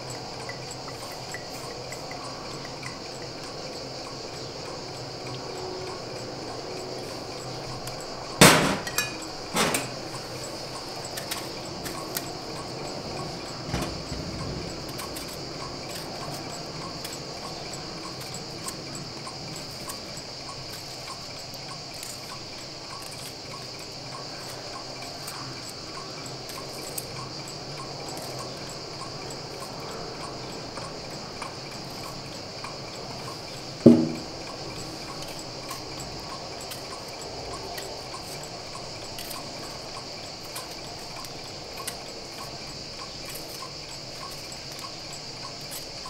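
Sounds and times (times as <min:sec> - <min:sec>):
faint regular ticking: 0:00.0 - 0:46.0
insect chirring: 0:00.0 - 0:46.0
sharp knocks: 0:08.4 - 0:09.9, 0:33.8 - 0:34.4.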